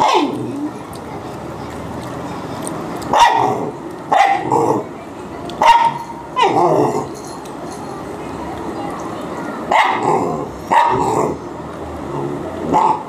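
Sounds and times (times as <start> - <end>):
dog barking: 0.0 - 0.4, 3.1 - 4.5, 5.6 - 6.6, 9.7 - 10.1, 10.7 - 11.1.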